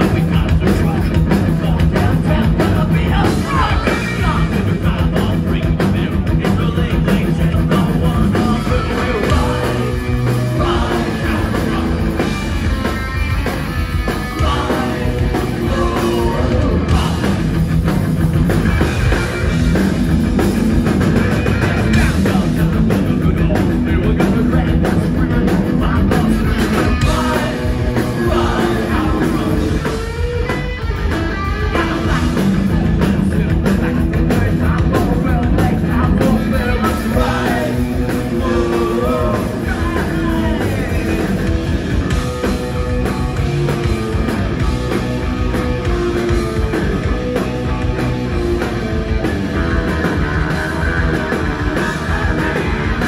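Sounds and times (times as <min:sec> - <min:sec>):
person singing: 0:00.0 - 0:12.4, 0:14.2 - 0:17.4, 0:21.9 - 0:30.1, 0:31.6 - 0:41.5
bass: 0:00.0 - 0:53.0
distorted electric guitar: 0:00.0 - 0:53.0
drums: 0:00.0 - 0:53.0.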